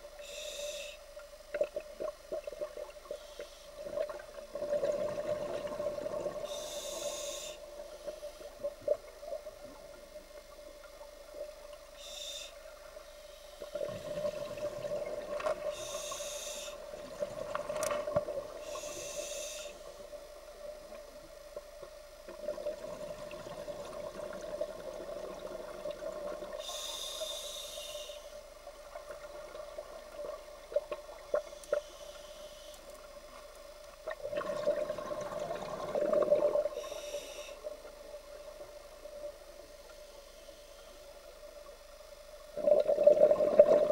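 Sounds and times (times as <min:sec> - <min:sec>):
steady hum: 0:00.0 - 0:43.9
regulator hissing inhalations: 0:00.2 - 0:01.1, 0:06.4 - 0:07.8, 0:12.0 - 0:13.7, 0:15.7 - 0:16.9, 0:18.6 - 0:20.0, 0:26.6 - 0:28.4, 0:36.7 - 0:37.7
bubbling exhalations: 0:42.6 - 0:43.9.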